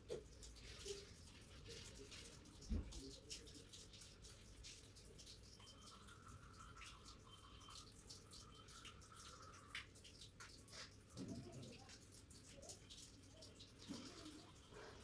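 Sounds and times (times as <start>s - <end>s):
faint steady high tone: 5.6s - 9.5s.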